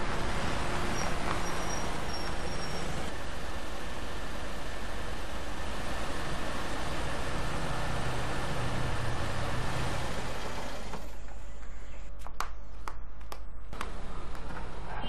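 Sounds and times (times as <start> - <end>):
car engine running: 0.0 - 11.2.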